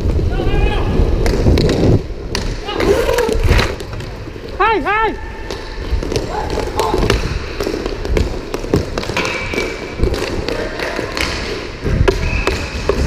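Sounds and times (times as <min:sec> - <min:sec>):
skate wheels rumbling on floor: 0:00.0 - 0:13.0
sticks and puck clacking: 0:05.4 - 0:13.0.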